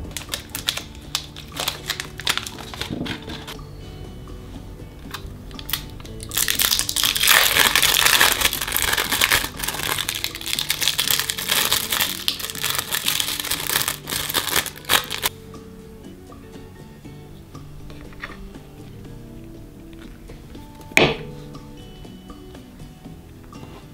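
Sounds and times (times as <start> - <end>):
plastic wrapper crinkling: 0.0 - 3.6, 5.6 - 15.3
light background music: 0.0 - 23.9.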